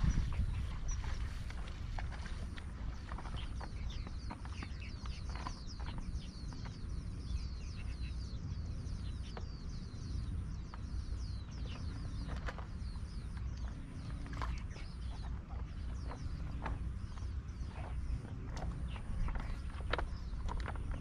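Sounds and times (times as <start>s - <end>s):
low steady rumble: 0.0s - 21.0s
small birds chirping: 0.0s - 21.0s.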